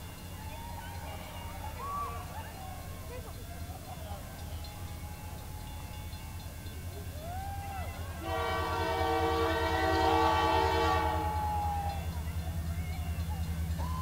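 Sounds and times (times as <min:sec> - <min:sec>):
locomotive air horn blast: 0:08.2 - 0:11.4.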